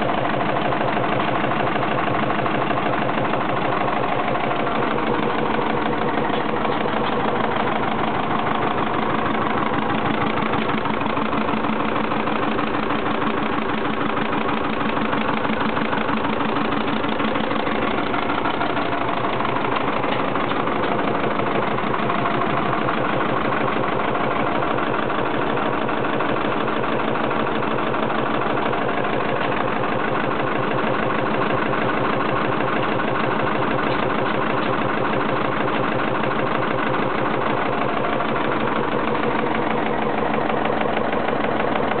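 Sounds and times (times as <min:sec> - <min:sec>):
stationary engine running: 0:00.0 - 0:42.0.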